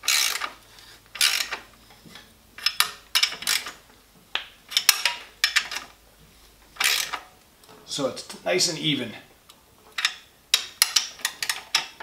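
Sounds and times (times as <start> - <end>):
ratchet wrench clicking: 0.0 - 0.5, 1.2 - 1.6, 2.6 - 3.8, 6.8 - 7.2.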